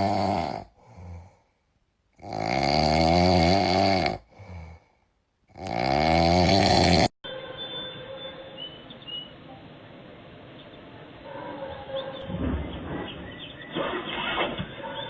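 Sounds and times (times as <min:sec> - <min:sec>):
loud snoring: 0:00.0 - 0:01.4, 0:02.1 - 0:04.8, 0:05.5 - 0:07.2.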